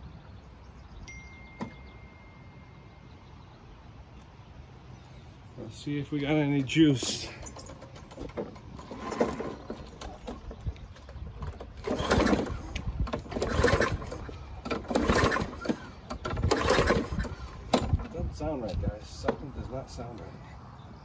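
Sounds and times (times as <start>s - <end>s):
mower engine pull-start cranking: 6.6s - 18.2s.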